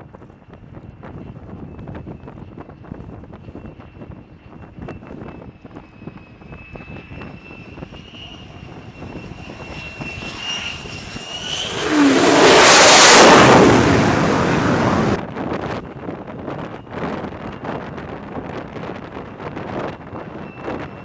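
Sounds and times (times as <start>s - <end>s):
jet engine whine: 0.0s - 21.0s
jet roar: 5.4s - 15.4s.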